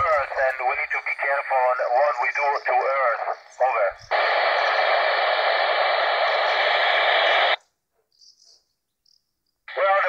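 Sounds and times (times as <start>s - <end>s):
radio static: 0.0s - 7.6s, 9.7s - 10.0s.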